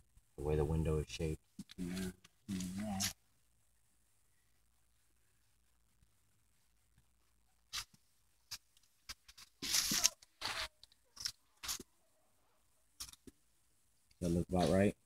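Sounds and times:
trim strip rustling and scraping: 7.7 - 11.9.

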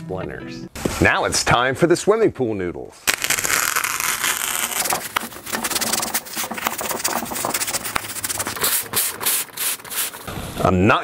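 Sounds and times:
foam noodles rubbing and scraping: 3.1 - 10.5.

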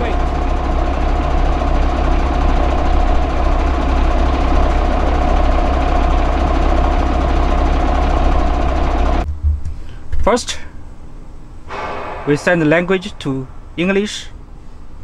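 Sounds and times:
machinery whine: 0.0 - 9.3, 10.9 - 15.0
truck engine low hum: 0.0 - 15.0.

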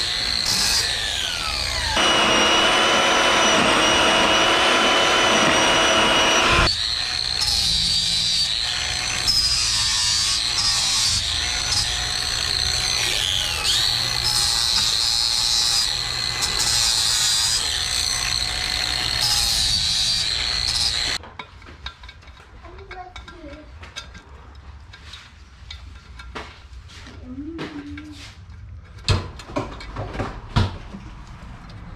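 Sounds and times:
grinder cutting metal: 0.0 - 21.2
grinder motor whine: 0.0 - 21.2.

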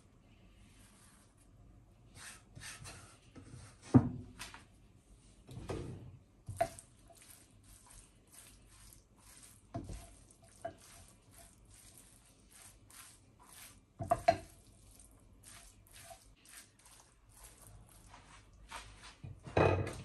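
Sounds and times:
spatula scraping in frying pan: 6.5 - 20.0.

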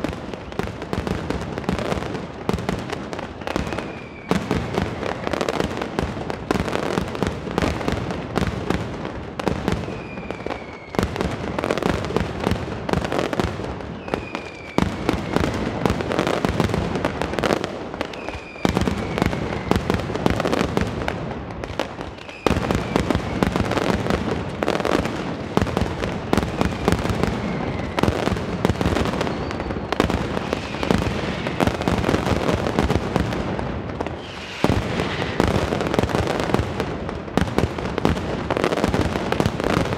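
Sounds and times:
aerial fireworks bursting: 0.0 - 39.9
short falling whistles: 10.0 - 11.0, 14.0 - 15.4, 34.2 - 35.4.

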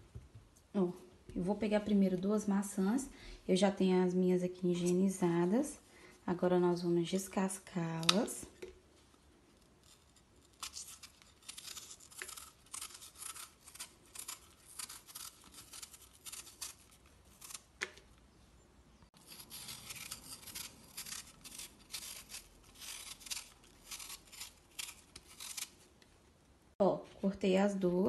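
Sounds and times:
knife peeling apple skin: 7.2 - 8.9, 9.5 - 18.3, 19.2 - 26.2.

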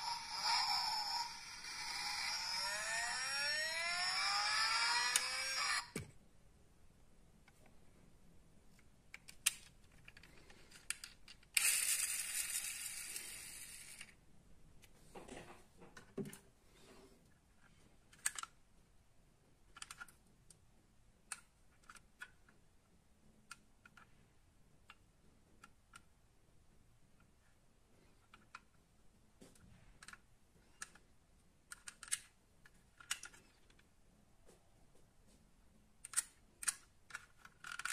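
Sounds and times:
metal model cars clicking: 31.7 - 32.3, 36.0 - 37.9.

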